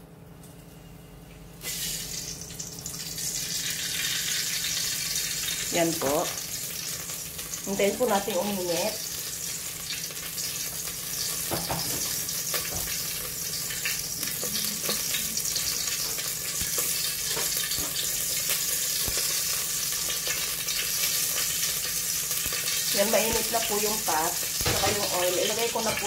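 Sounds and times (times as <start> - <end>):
oil sizzling in a pot: 1.6 - 26.0.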